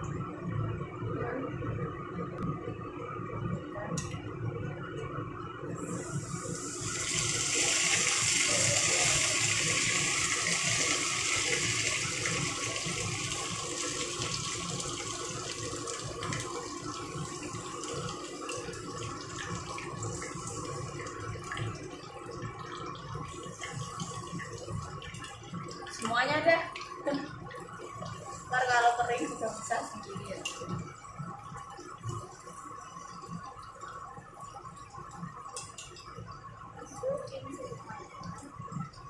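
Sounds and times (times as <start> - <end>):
chicken sizzling in hot oil: 5.8 - 26.2.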